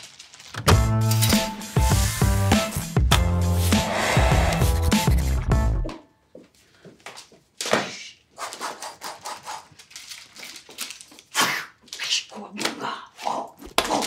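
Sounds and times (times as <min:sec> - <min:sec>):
music: 0:00.6 - 0:06.2.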